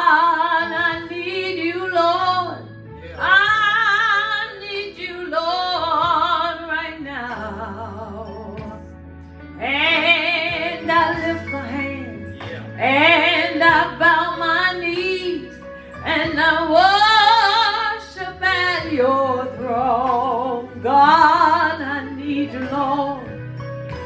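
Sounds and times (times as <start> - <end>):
woman singing with vibrato: 9.6 - 23.3.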